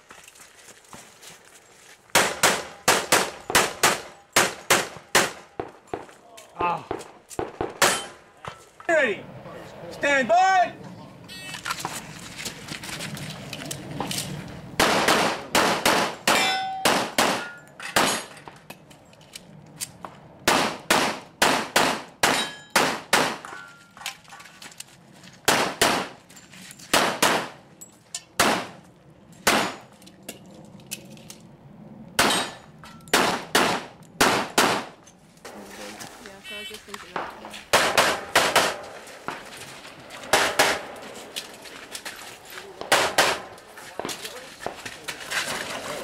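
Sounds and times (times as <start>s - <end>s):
steel target plates ringing: 16.3s - 18.4s, 22.4s - 22.8s.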